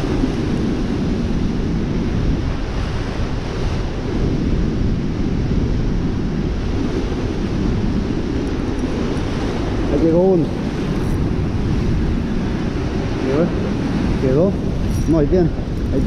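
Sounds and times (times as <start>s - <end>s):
floodwater rushing below spillway: 5.0s - 16.0s.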